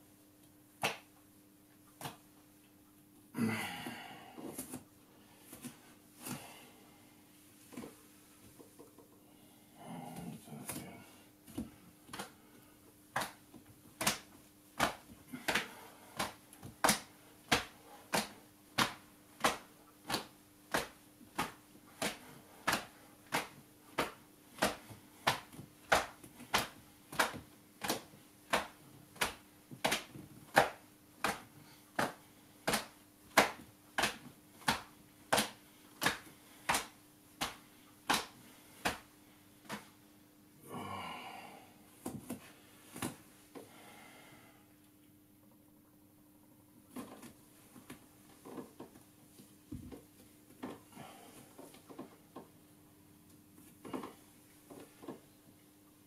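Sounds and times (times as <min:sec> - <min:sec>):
faint steady hum: 0:00.0 - 0:56.0.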